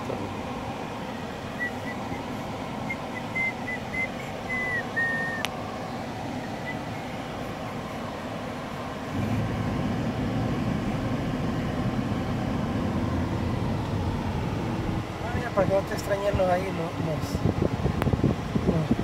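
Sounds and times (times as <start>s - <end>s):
road noise inside car: 0.0s - 19.0s
person whistling: 2.9s - 5.5s.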